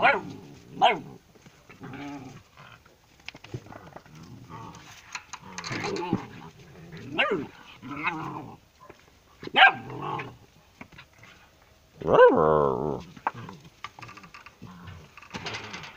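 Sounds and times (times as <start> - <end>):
dogs barking and yelping: 0.0 - 1.2, 7.0 - 8.2, 8.8 - 10.5.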